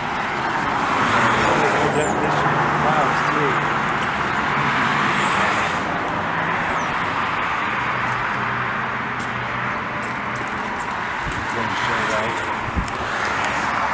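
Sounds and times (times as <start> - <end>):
road traffic rushing: 0.0 - 13.9.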